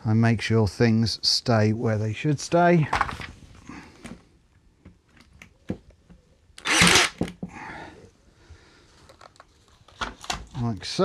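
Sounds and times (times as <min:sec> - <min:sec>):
nail gun firing: 0:06.6 - 0:07.4.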